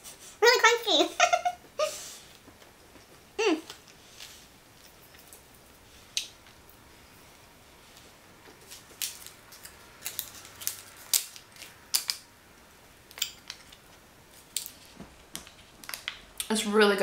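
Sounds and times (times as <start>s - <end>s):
crunchy chewing of chocolate bar: 8.6s - 12.2s.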